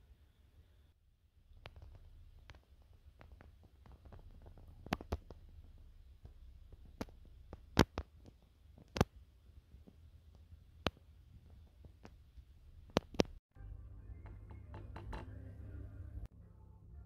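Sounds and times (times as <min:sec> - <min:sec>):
sharp clicks and knocks: 0:01.5 - 0:09.2, 0:09.8 - 0:13.4, 0:14.2 - 0:15.4
low hum: 0:09.5 - 0:17.0.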